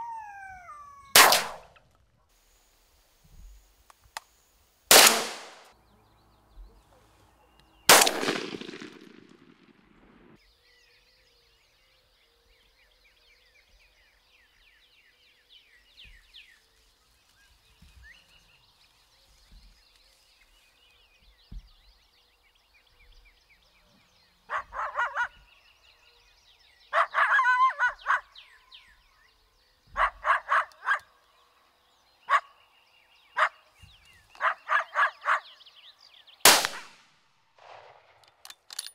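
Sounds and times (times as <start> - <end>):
echoing rifle shots: 1.1 - 1.7, 4.9 - 5.7, 7.9 - 10.4, 36.5 - 37.0, 37.6 - 38.5
short barking yips: 27.0 - 28.3, 30.0 - 31.1.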